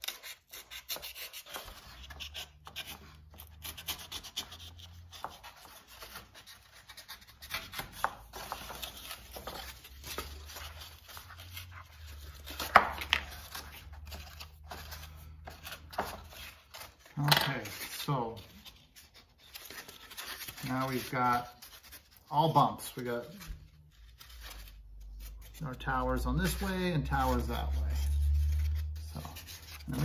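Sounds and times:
knife scraping cardboard: 0.0 - 22.2, 26.4 - 30.0
sharp cardboard crack: 12.4 - 14.8.

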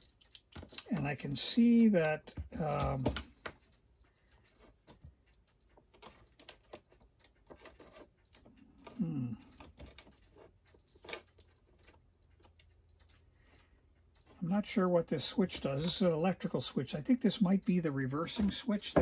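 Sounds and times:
small metal parts clicking: 0.0 - 1.1, 4.4 - 13.6
person murmuring hmm: 8.9 - 9.6.

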